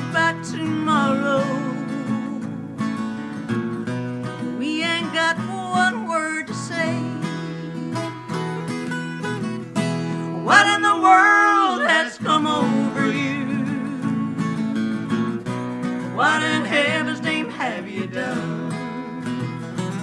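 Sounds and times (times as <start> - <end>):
acoustic guitar strumming: 0.0 - 20.0.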